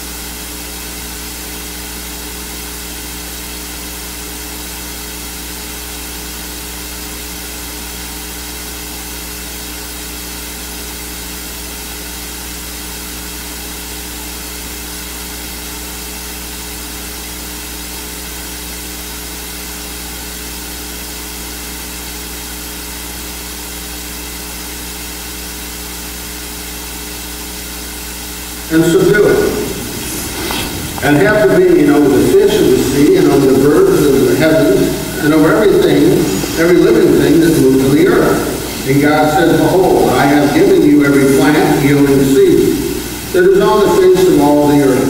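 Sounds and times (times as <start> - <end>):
electronic hiss: 0.0 - 45.0
low hum: 27.9 - 45.0
steady electronic tones: 28.5 - 45.0.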